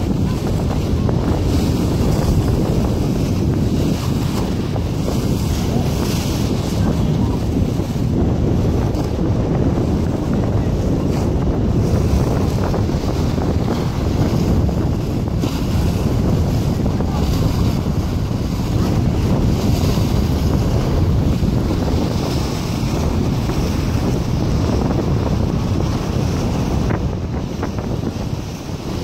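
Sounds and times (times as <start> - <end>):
waves breaking against a seawall: 0.0 - 29.0
wind buffeting microphone: 0.0 - 29.0.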